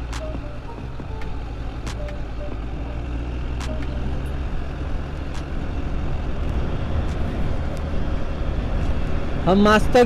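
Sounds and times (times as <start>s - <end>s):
motorcycle engine hum: 0.0s - 10.0s
wind rumble on microphone: 5.4s - 9.5s.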